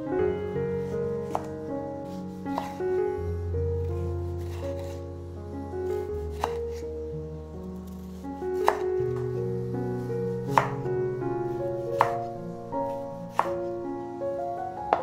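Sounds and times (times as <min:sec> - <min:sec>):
knife slicing tomato: 0:01.2 - 0:01.5, 0:02.5 - 0:02.8, 0:06.3 - 0:06.7, 0:08.6 - 0:08.9, 0:10.4 - 0:10.8, 0:11.9 - 0:12.2, 0:13.3 - 0:13.7.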